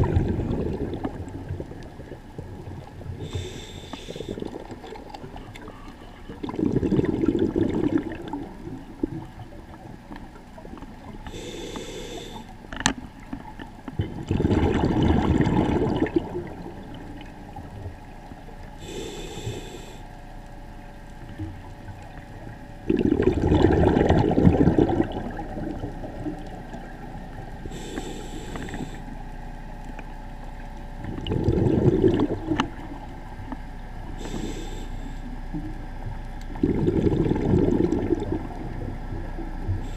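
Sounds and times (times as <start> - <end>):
bubbling exhalations underwater: 0.0 - 9.5, 14.0 - 17.8, 22.8 - 27.0, 31.0 - 33.1, 36.5 - 39.9
regulator hissing inhalation: 3.2 - 4.5, 11.3 - 12.5, 18.8 - 20.0, 27.7 - 29.1, 34.2 - 35.3.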